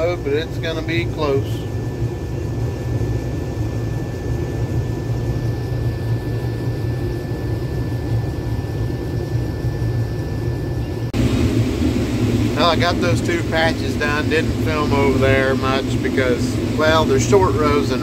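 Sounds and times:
combine harvester low drone: 0.0 - 18.0
high auger whine: 10.9 - 18.0.

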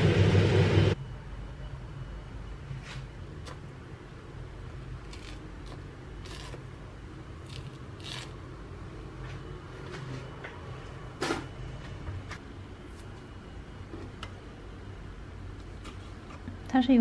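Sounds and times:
low steady hum: 0.0 - 17.0
orange peel tearing: 5.0 - 6.7, 7.4 - 8.4.

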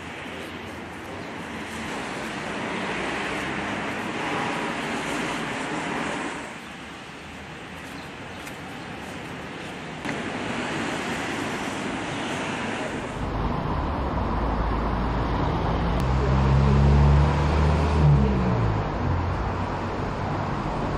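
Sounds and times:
road traffic noise: 0.0 - 20.9.

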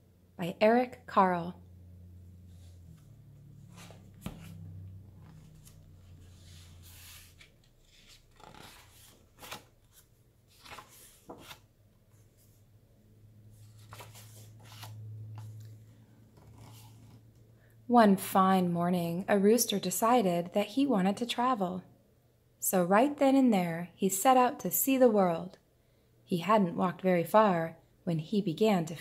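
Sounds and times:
low steady hum: 0.0 - 29.0
book pages turning: 2.6 - 12.6, 13.6 - 17.3.

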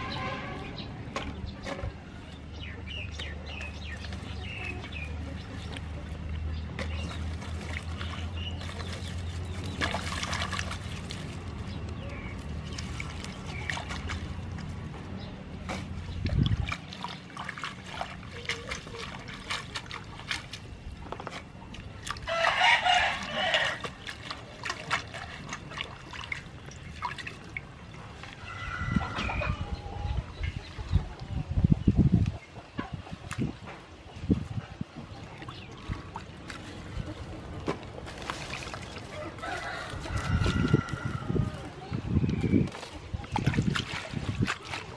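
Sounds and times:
water splashing: 0.0 - 29.6, 33.1 - 44.9
hands swishing greens in water: 6.7 - 28.4, 35.2 - 44.9
rooster crowing: 39.2 - 41.6.

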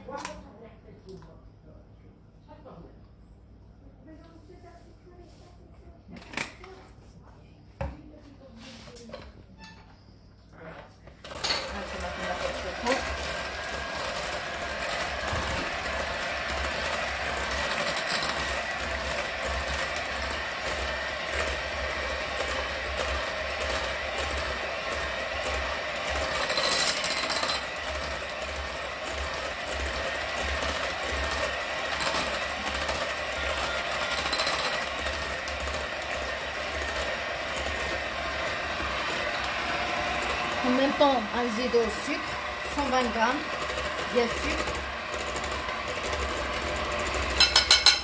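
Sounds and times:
electric hand mixer whisking: 11.3 - 48.0.

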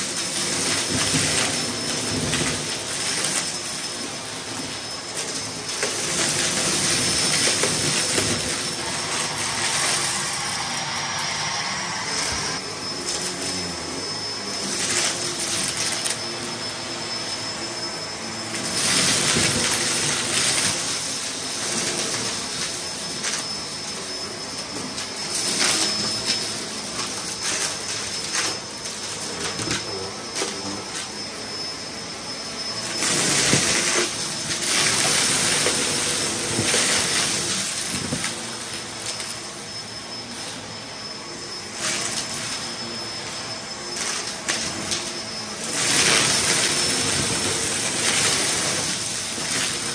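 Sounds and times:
debris rattling into vacuum: 0.0 - 11.2
vacuum cleaner whining: 0.0 - 49.9.

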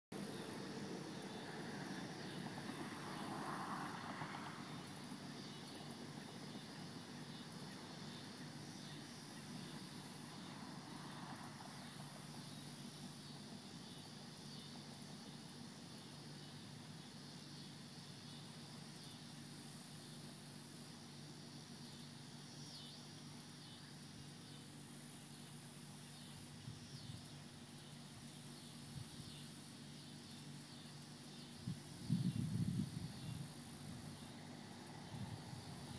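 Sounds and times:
insects chirping faintly: 0.1 - 35.9
steady low hum: 0.1 - 35.9
distant engine: 0.2 - 14.3, 33.4 - 35.9.

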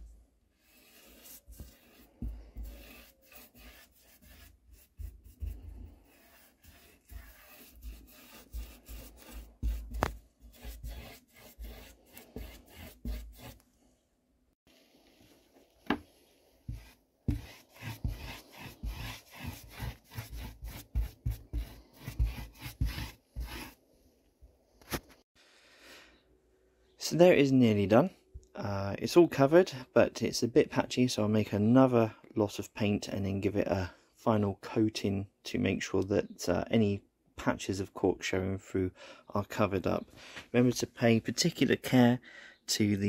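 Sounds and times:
paintbrush scraping: 0.0 - 13.6, 16.2 - 23.8.

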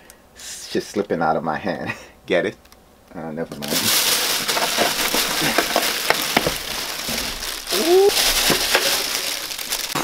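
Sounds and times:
plastic wrapping crinkling: 3.5 - 10.0.

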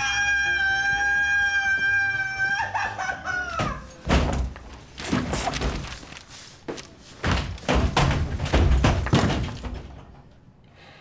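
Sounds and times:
man screaming shrilly: 0.0 - 3.7
hard thumps and knocks: 7.2 - 10.3.

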